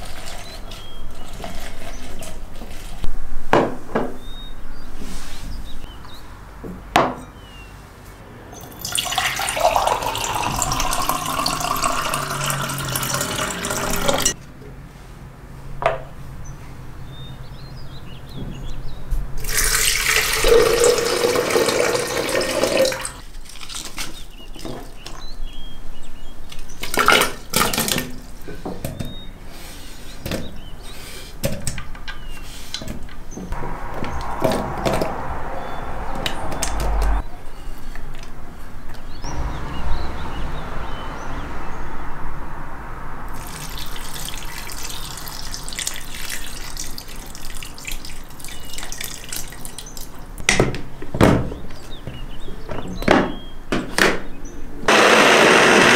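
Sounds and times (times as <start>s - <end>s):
water pouring in a stream: 8.7s - 14.4s, 19.4s - 24.2s, 43.3s - 50.2s.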